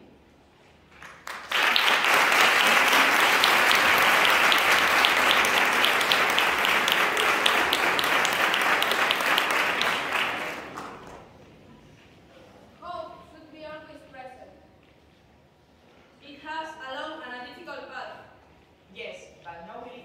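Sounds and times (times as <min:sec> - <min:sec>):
audience applauding: 0:01.0 - 0:11.4.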